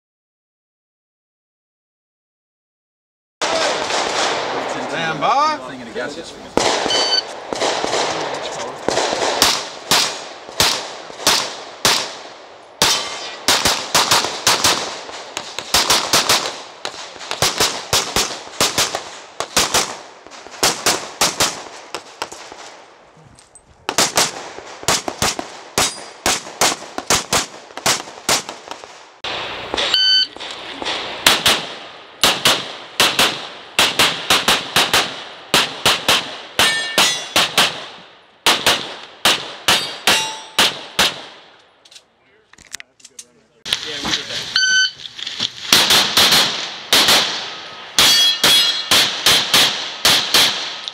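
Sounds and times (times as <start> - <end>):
rapid pistol fire: 3.4 - 4.7, 6.6 - 22.8, 23.9 - 29.1, 29.7 - 41.5, 45.7 - 50.9
steel targets ringing: 6.9 - 7.2, 36.6 - 37.4, 39.8 - 40.6, 47.9 - 48.9.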